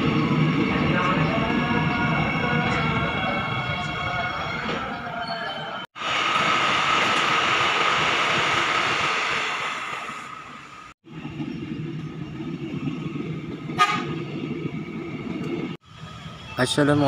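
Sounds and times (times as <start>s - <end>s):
electric train passing with whine: 0.0s - 17.0s
train rumbling by: 0.0s - 17.0s.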